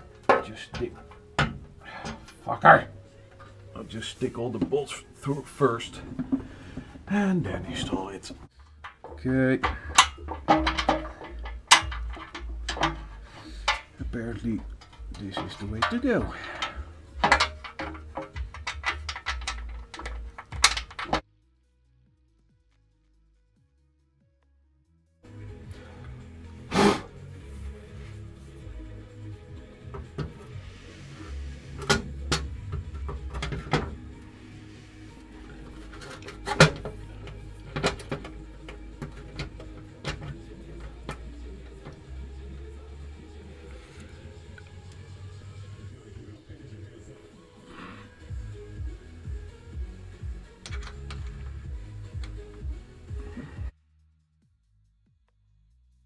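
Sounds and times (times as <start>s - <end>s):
faint music: 0.0s - 53.8s
metal bolts clicking and rattling: 8.6s - 21.2s, 31.8s - 34.2s, 35.1s - 42.1s, 50.5s - 52.6s
metal oil pan clunking: 8.8s - 21.2s.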